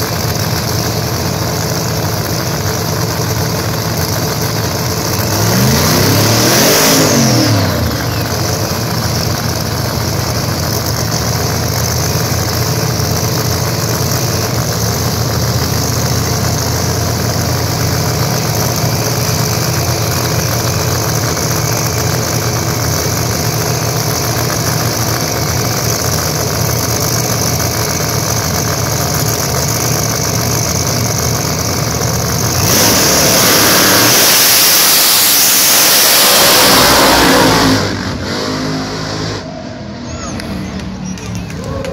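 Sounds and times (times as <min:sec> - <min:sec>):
drag racing engines revving: 0:00.0 - 0:41.9
engines idling: 0:00.0 - 0:41.9.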